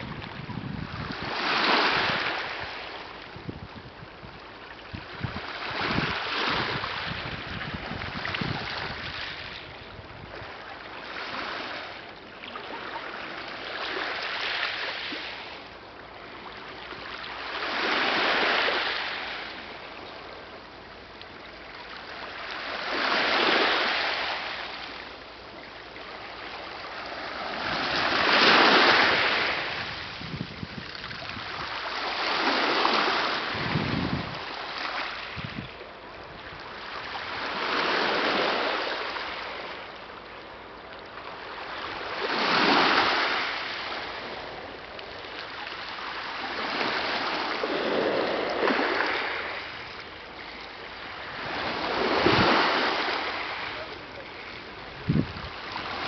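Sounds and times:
waves washing over pebbles: 0.0s - 3.7s, 5.0s - 9.7s, 26.1s - 35.6s, 41.0s - 56.0s.

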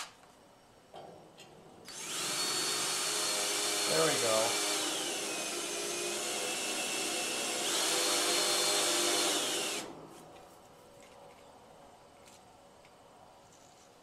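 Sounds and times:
power drill drilling into metal: 1.9s - 9.9s.

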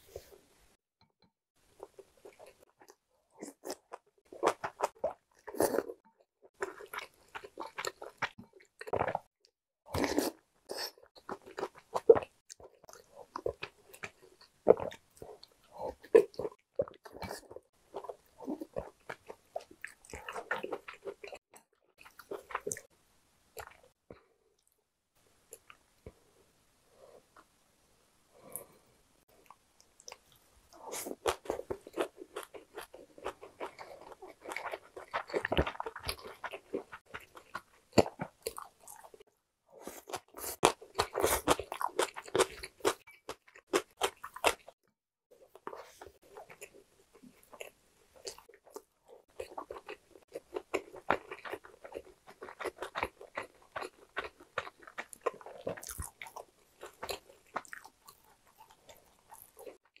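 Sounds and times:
food crunching: 29.4s - 39.2s, 39.8s - 44.8s, 45.4s - 60.0s.

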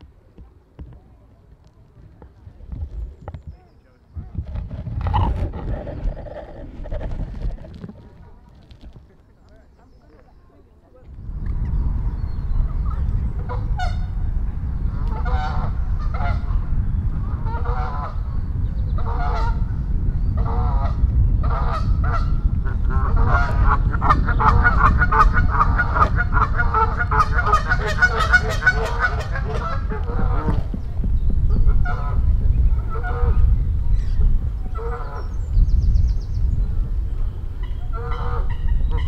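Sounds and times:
low rumble: 1.0s - 9.6s, 11.1s - 39.0s
geese honking: 13.4s - 14.2s, 15.1s - 16.6s, 20.4s - 30.7s, 37.6s - 39.0s.

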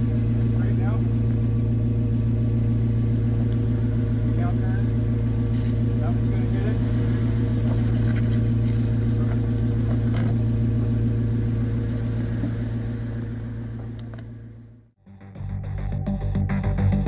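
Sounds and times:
car engine running at low speed: 0.0s - 17.0s.

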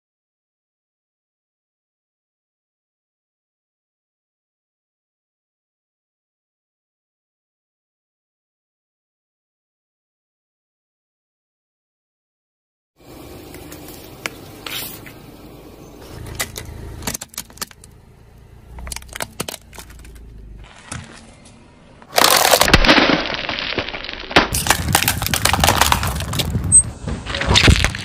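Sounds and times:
plastic breaking under tyre: 16.2s - 18.0s, 18.8s - 21.2s, 22.0s - 26.7s, 27.3s - 28.0s
tyre crushing objects: 18.8s - 21.4s, 22.0s - 28.0s
crackles and clicks: 18.8s - 28.0s.

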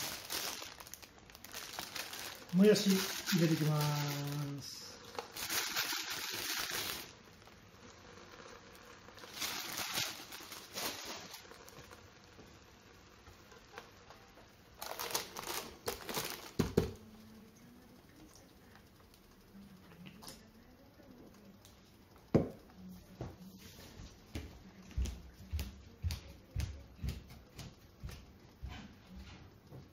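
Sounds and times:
baking paper rustling: 0.0s - 7.2s, 8.3s - 12.0s, 14.8s - 16.9s.

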